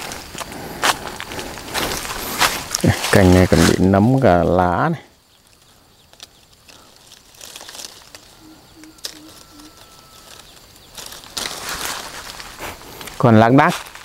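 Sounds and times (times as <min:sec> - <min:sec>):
leaves and twigs rustling: 0:00.0 - 0:14.0
small twig snaps: 0:05.5 - 0:09.2
distant low call: 0:08.2 - 0:10.6.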